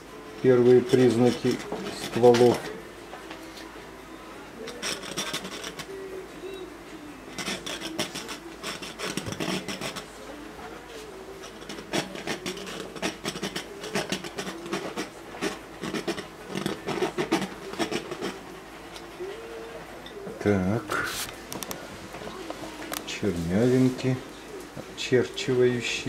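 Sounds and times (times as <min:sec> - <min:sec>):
paintbrush scratching on canvas: 0:00.6 - 0:02.7, 0:04.7 - 0:05.9, 0:07.3 - 0:10.4, 0:11.4 - 0:19.2.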